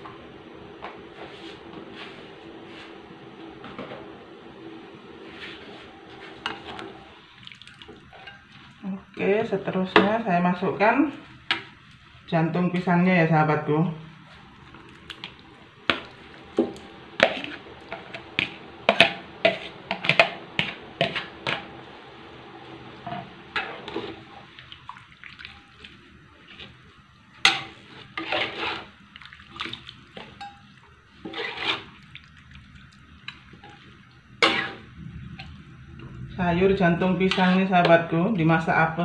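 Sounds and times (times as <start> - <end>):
liquid sloshing in wok: 23.0 - 36.4
metal spatula scraping: 27.4 - 29.0, 30.4 - 32.0, 34.4 - 34.9, 37.1 - 38.0.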